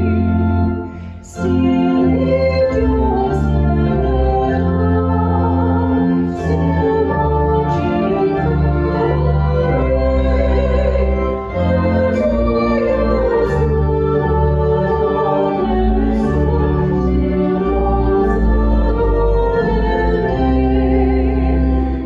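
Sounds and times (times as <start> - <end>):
church organ playing hymn: 0.0 - 22.0
people singing: 1.2 - 22.0.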